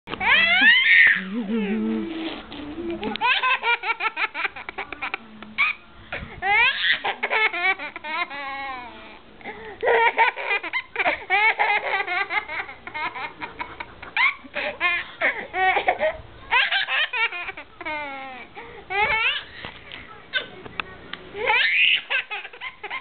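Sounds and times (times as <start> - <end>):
person gasping: 9.4 - 9.8.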